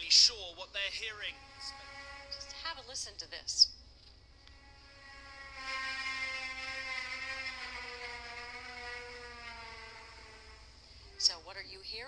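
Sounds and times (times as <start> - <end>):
long droning tone: 0.9 - 3.2, 4.4 - 11.7.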